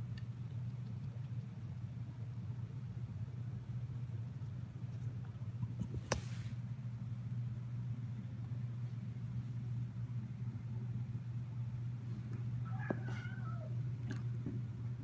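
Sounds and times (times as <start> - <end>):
steady low hum: 0.0 - 15.0
cat meowing: 12.7 - 13.8.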